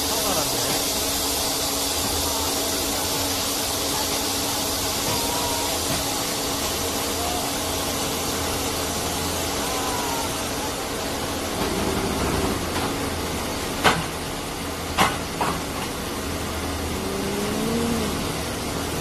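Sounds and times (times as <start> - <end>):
truck engine idling: 0.0 - 19.0
rising and falling whine: 16.6 - 19.0.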